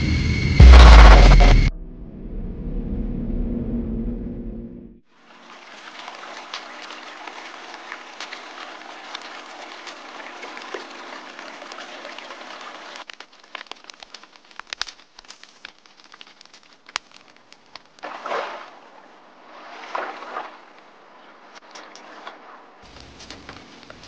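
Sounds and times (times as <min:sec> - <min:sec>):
creek water running over stones: 0:05.1 - 0:24.0
campfire crackling and popping: 0:06.3 - 0:18.1.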